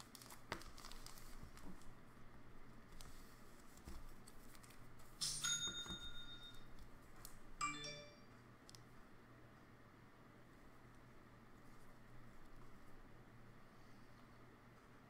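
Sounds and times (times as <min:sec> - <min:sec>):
electronic alert chimes: 0:05.2 - 0:06.7, 0:07.6 - 0:08.2.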